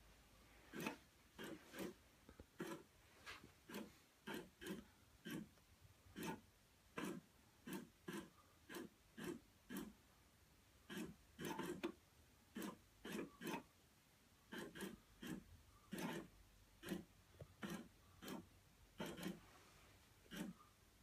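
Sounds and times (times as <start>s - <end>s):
toy motor whirring: 0.7s - 2.0s, 2.6s - 2.9s, 3.6s - 5.5s, 6.1s - 6.4s, 7.0s - 10.0s, 10.9s - 13.7s, 14.5s - 19.5s, 20.3s - 20.6s.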